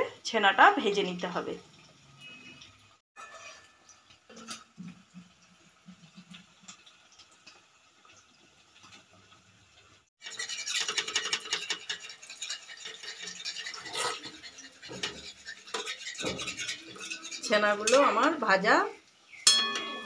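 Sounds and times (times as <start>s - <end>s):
food frying in hot oil: 0.0s - 20.0s
spoon knocking on steel pan: 19.5s - 20.0s.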